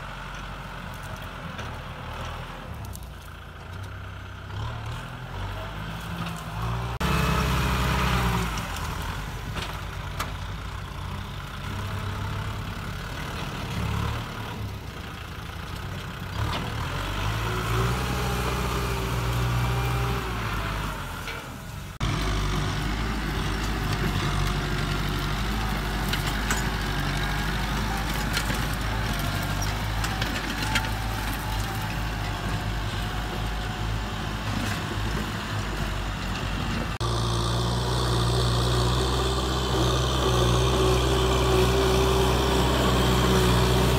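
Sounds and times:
tractor diesel engine under load: 0.0s - 43.9s.

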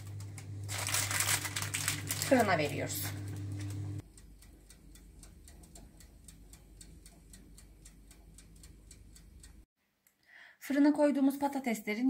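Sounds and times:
low electrical hum: 0.0s - 9.7s
rapid clockwork ticking: 4.0s - 9.7s.

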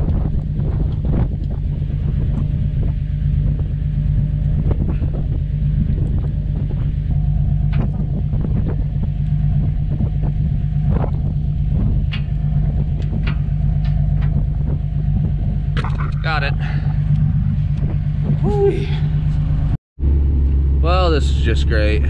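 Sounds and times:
diesel tractor engine idling: 1.4s - 22.0s
sharp clicks and knocks: 11.8s - 16.3s.

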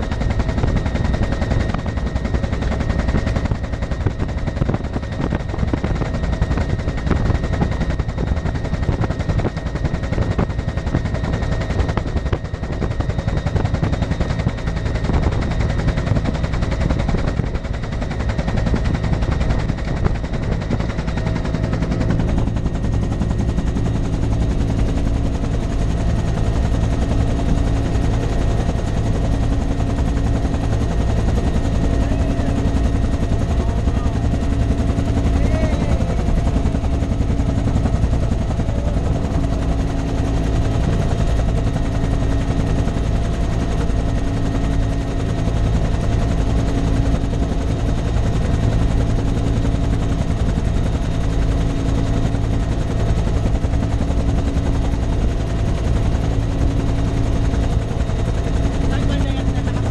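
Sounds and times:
helicopter rotor beating: 0.0s - 59.9s.

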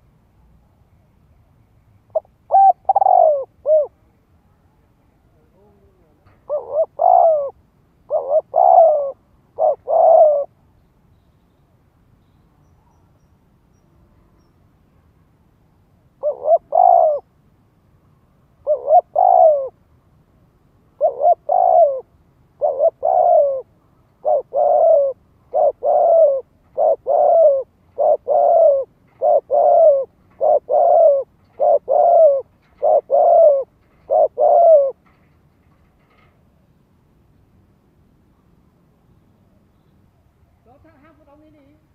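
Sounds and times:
dove cooing: 2.1s - 4.0s, 5.4s - 10.6s, 16.2s - 17.3s, 18.6s - 19.8s, 21.0s - 35.1s.

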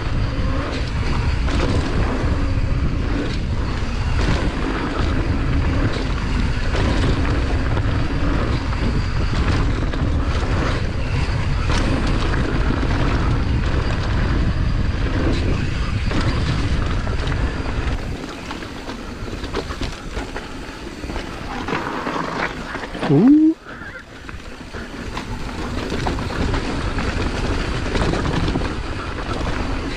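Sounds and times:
wind buffeting microphone: 0.0s - 22.0s
bike rattles and clicks: 0.0s - 23.0s, 24.1s - 29.9s
bike tyre noise on dirt: 0.0s - 29.9s.

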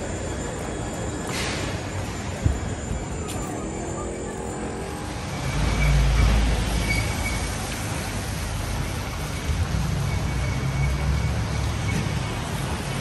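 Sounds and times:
road traffic passing: 0.0s - 13.0s.

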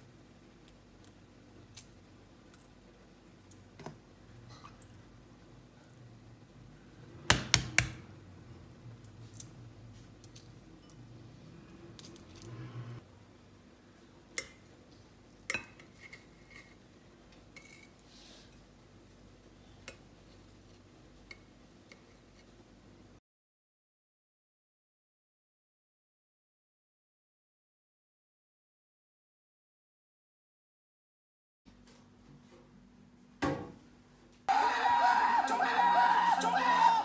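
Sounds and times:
low background hum: 0.0s - 23.2s.

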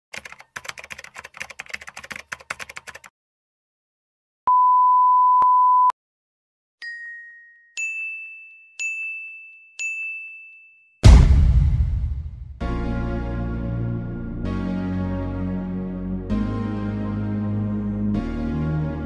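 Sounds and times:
rapid clicks: 0.1s - 3.1s
bell-like dings: 6.8s - 11.0s.

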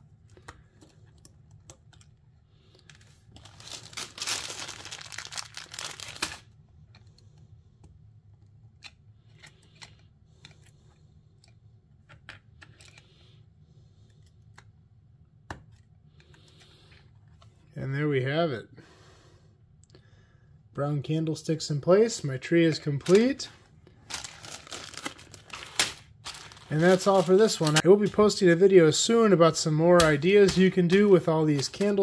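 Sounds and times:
crinkling rustle: 2.8s - 6.5s, 23.0s - 28.4s, 30.0s - 32.0s.

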